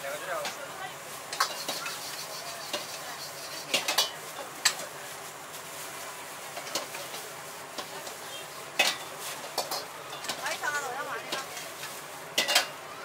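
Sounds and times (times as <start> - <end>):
food sizzling: 0.0 - 13.0
metal ladle clanking on wok: 2.7 - 4.8, 8.8 - 10.5, 12.4 - 12.8.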